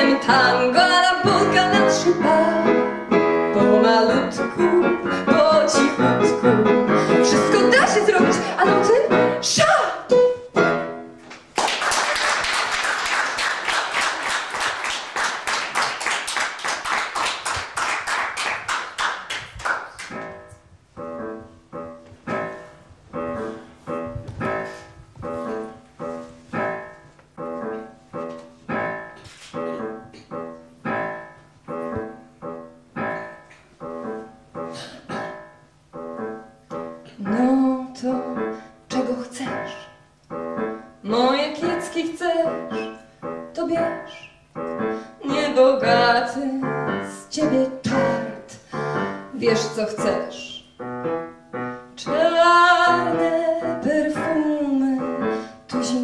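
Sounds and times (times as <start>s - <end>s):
piano playing repeated chords: 0.0s - 11.5s, 13.4s - 56.0s
audience applause: 11.6s - 20.1s.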